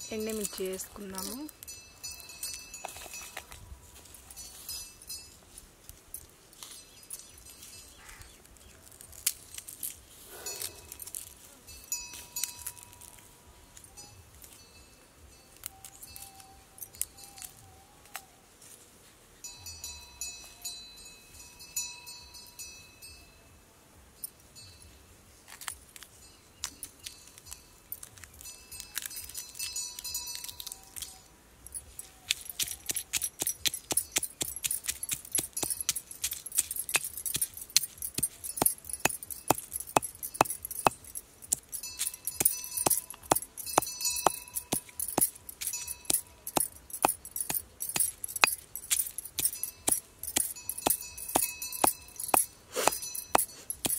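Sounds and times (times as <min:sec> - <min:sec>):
bangles clinking: 0:00.0 - 0:17.8, 0:19.4 - 0:23.3, 0:24.2 - 0:53.9
dry chillies breaking by hand: 0:08.0 - 0:11.4, 0:25.5 - 0:53.9
metal pestle pounding in stone mortar: 0:32.6 - 0:53.9.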